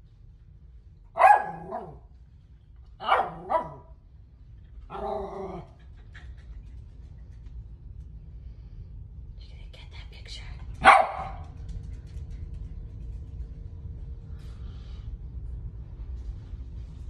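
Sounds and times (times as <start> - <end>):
dog barking: 1.2 - 2.1, 3.0 - 4.0, 4.9 - 5.6, 10.8 - 11.5.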